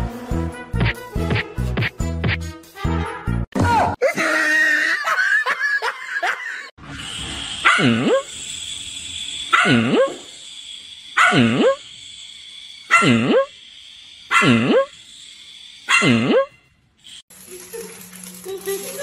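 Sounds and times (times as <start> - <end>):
puppy barking: 7.6 - 8.2, 9.5 - 10.2, 11.2 - 11.8, 12.9 - 13.5, 14.3 - 14.9, 15.9 - 16.6.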